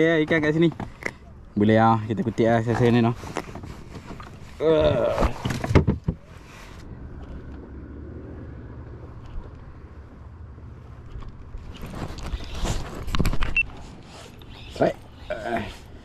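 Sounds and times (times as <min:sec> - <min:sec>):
rustling and knocking near microphone: 0:02.2 - 0:06.8, 0:10.9 - 0:14.4.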